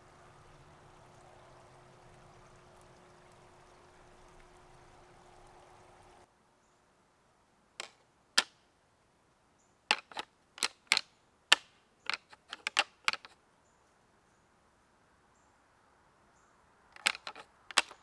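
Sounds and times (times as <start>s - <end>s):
antlers clacking together: 17.0s - 18.0s.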